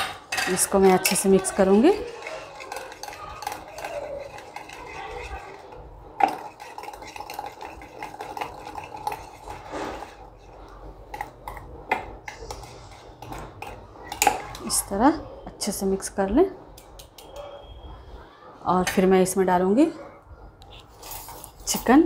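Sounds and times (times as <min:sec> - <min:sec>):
whisk clinking against bowl: 0:00.0 - 0:14.6
whisk stirring and scraping: 0:00.0 - 0:14.9
whisk knocking on bowl: 0:00.5 - 0:10.5.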